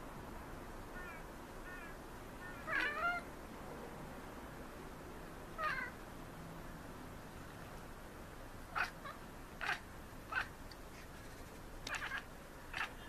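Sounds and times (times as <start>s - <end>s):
cat chirping meows: 2.4s - 3.3s, 5.6s - 6.0s.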